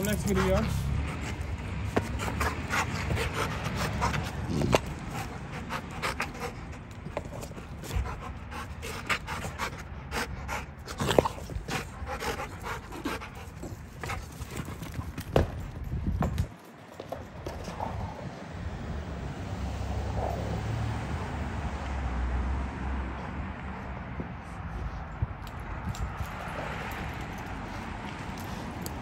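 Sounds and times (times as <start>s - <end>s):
dog panting: 0.0s - 18.3s.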